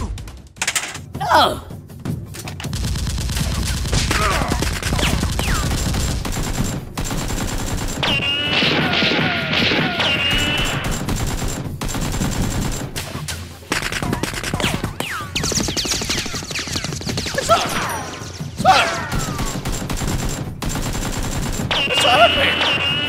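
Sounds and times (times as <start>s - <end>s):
rapid gunfire: 2.6s - 23.0s
falling whistles: 21.8s - 23.0s.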